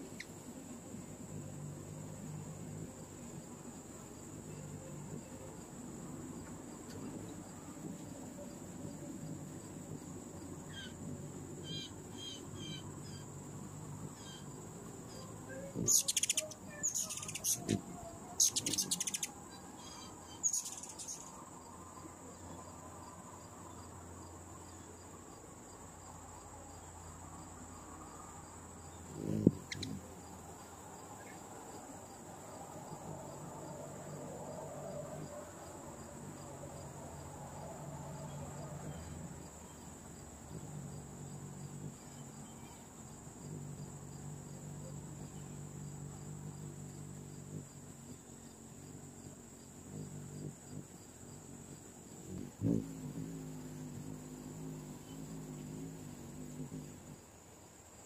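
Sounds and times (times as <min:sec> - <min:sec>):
high-pitched insect trill: 0:00.0 - 0:58.0
bird chirping: 0:11.6 - 0:13.3, 0:14.2 - 0:21.4, 0:29.2 - 0:30.0.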